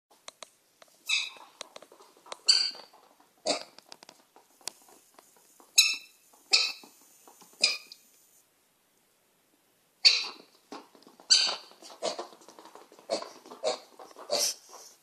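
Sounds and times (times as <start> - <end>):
piglet squealing: 1.1 - 1.5, 2.5 - 2.9, 5.8 - 6.8, 7.6 - 8.0, 10.0 - 10.5.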